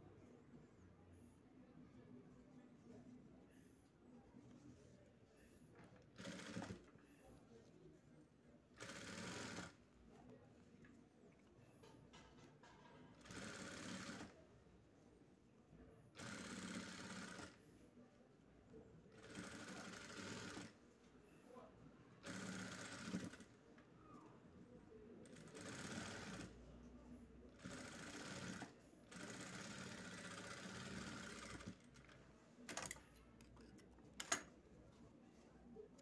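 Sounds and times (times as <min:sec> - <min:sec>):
sewing machine stitching: 0:06.2 - 0:06.8, 0:08.8 - 0:09.8, 0:13.2 - 0:14.3, 0:16.2 - 0:17.6, 0:22.2 - 0:23.4, 0:27.6 - 0:31.8.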